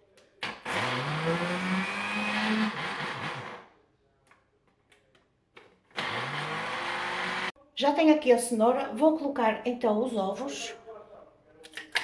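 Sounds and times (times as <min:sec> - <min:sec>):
blender motor whining: 0:00.4 - 0:03.7, 0:06.0 - 0:07.5.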